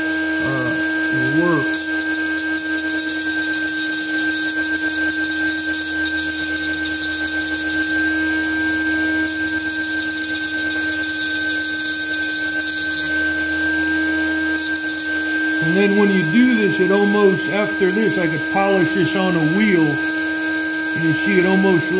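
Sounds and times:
rotary tool grinding metal: 0:00.0 - 0:21.9.

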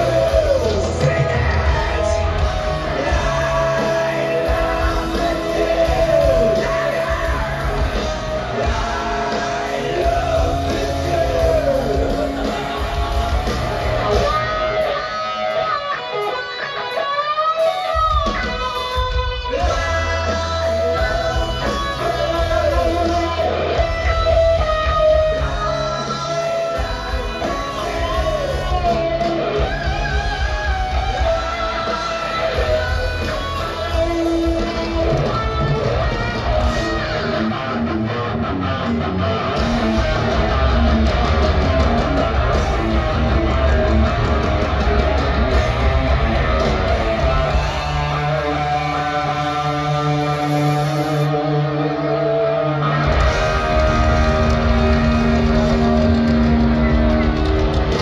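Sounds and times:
person singing: 0:00.0 - 0:15.1
live hard rock band: 0:00.0 - 0:58.0.

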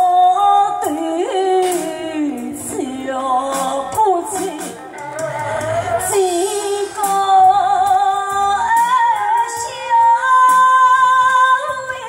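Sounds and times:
woman singing opera aria: 0:00.0 - 0:12.0.

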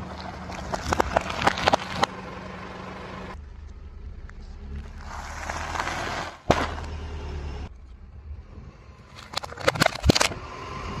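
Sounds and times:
chips crunching under tyre: 0:00.0 - 0:02.1, 0:04.8 - 0:06.9
plastic container cracking: 0:00.1 - 0:02.1, 0:09.1 - 0:10.3
bag bursting with a pop: 0:06.4 - 0:06.9.

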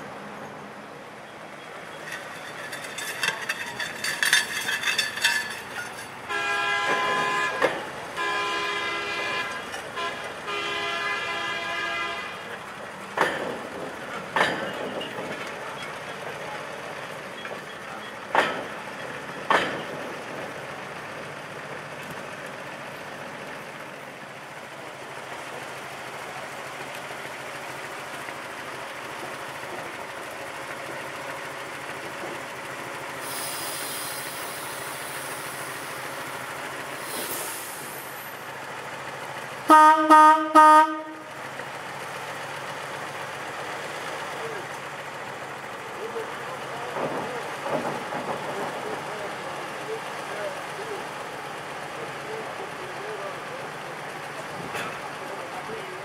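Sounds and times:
wheels clanking over rail joints: 0:01.2 - 0:10.5, 0:12.4 - 0:39.7, 0:41.2 - 0:56.0
rail motorcar horn blasts: 0:06.2 - 0:12.6, 0:39.6 - 0:41.4.

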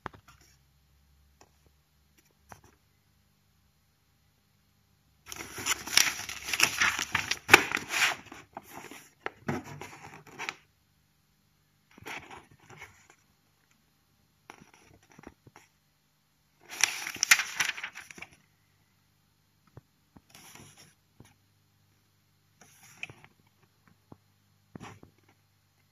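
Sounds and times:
paper pages rustling: 0:05.3 - 0:10.6, 0:16.6 - 0:18.4.

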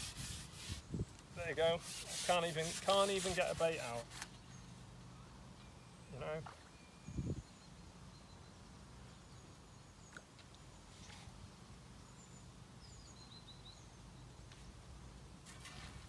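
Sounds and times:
small birds chirping: 0:12.0 - 0:14.8.

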